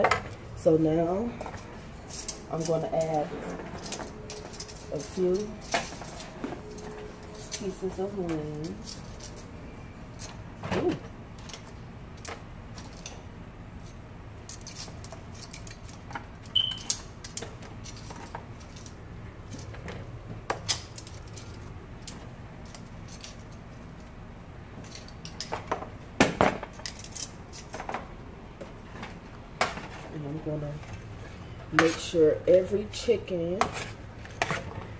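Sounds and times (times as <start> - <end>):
metal tongs clinking: 1.4 - 9.5.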